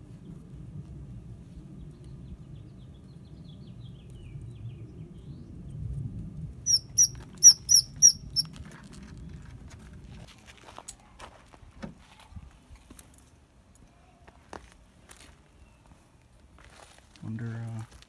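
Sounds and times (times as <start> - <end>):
squirrel squeaking: 6.7 - 8.5.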